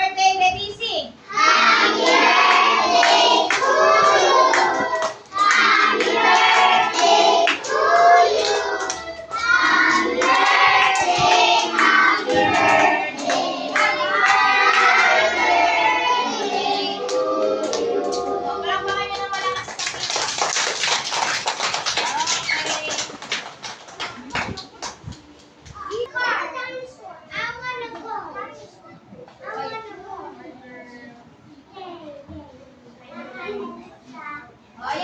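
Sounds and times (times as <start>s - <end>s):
children singing in chorus: 1.3s - 19.1s
children clapping hands: 2.0s - 15.3s, 18.9s - 25.5s.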